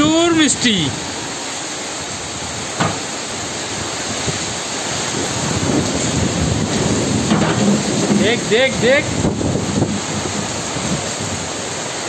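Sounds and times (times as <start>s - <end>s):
heavy rain pouring: 0.0s - 12.0s
brief knock: 2.8s - 3.0s.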